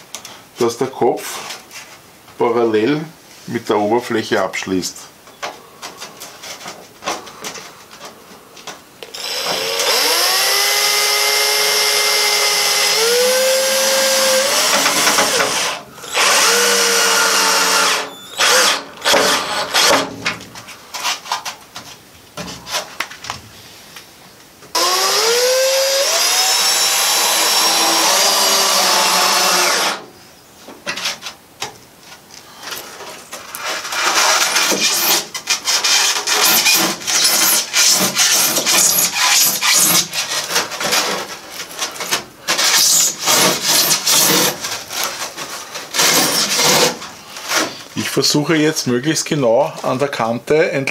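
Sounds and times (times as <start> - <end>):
power drill driving screws: 9.0 - 20.1, 24.7 - 30.0, 34.0 - 41.2, 42.6 - 45.0, 45.9 - 47.0
drill motor whine: 9.1 - 19.4, 24.8 - 30.0.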